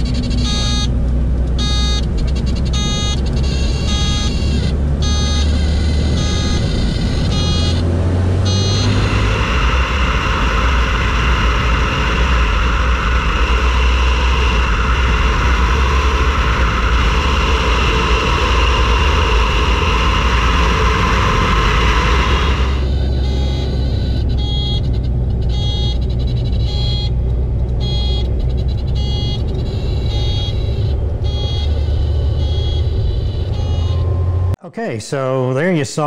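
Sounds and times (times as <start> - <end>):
airplane engine and propeller drone: 0.0 - 34.6
steady tone: 0.0 - 34.6
rush of wind noise: 5.7 - 24.2.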